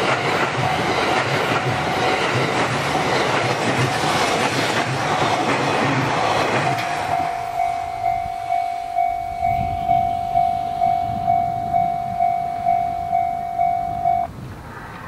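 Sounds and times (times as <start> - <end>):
level crossing warning bell: 0.0 - 2.8, 6.6 - 14.3
train rumble: 0.0 - 15.0.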